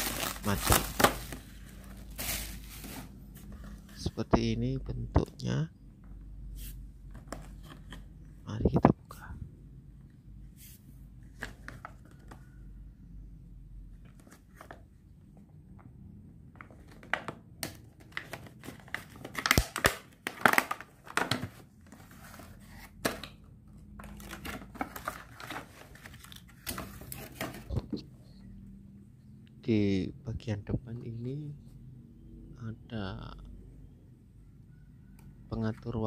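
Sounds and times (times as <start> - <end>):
plastic packaging crinkling: 0.0 - 3.1.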